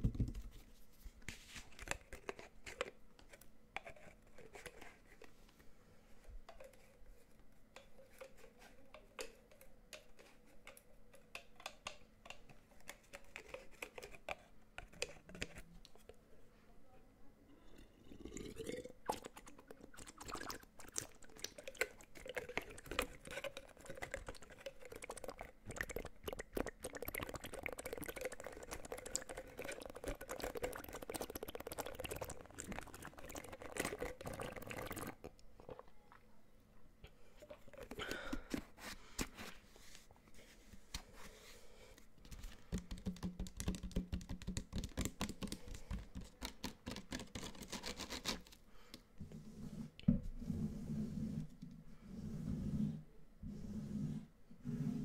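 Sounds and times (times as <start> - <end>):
fingers tapping plastic bottle: 42.7 - 48.2.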